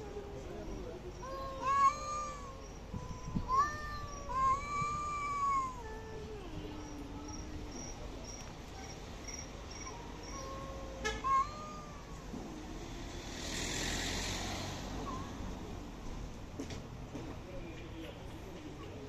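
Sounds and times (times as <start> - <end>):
cats yowling: 1.1 - 7.7, 9.7 - 12.6.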